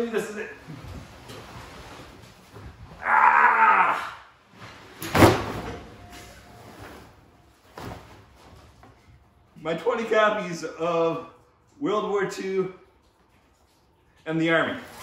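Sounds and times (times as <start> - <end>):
man groaning: 3.0 - 4.3.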